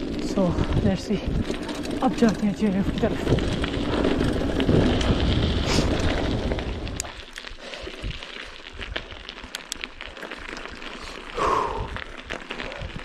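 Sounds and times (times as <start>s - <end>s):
wind buffeting microphone: 0.0s - 7.2s, 11.7s - 13.0s
bike tyres rolling on gravel: 0.0s - 13.0s.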